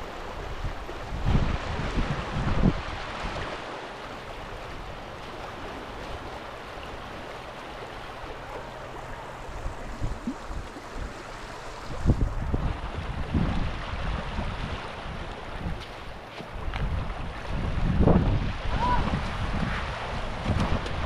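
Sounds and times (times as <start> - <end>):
wind buffeting microphone: 0.0 - 3.5, 8.9 - 21.0
creek water running over sand: 0.0 - 21.0
small waves washing in: 0.0 - 21.0.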